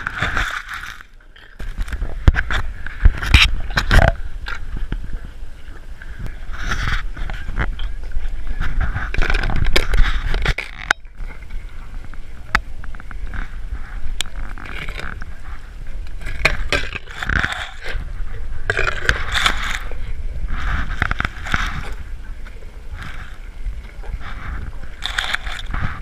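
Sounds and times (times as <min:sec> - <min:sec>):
skin rubbing over camera: 0:13.1 - 0:26.0
elephant wet chewing: 0:13.2 - 0:26.0.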